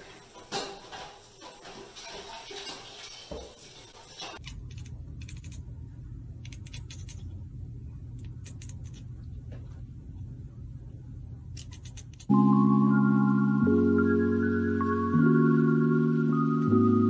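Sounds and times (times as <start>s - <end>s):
low steady rumble: 4.4s - 12.3s.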